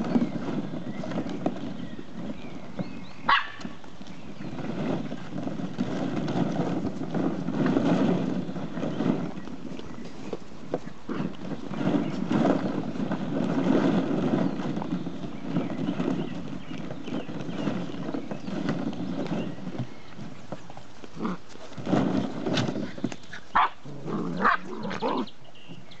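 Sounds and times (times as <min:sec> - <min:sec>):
puppy yips: 0:03.3 - 0:03.6.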